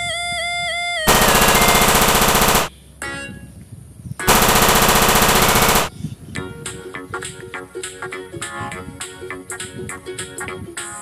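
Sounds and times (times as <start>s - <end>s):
toy synthetic machine-gun bursts: 1.1s - 2.7s, 4.3s - 5.9s.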